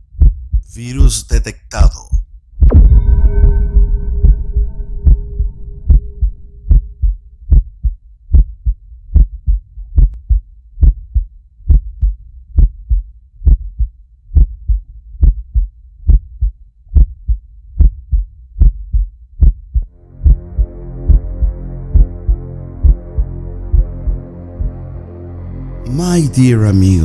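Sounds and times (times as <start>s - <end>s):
heartbeat thumps: 0.0s - 25.0s
steady electronic tone: 2.7s - 7.2s, 19.9s - 26.0s.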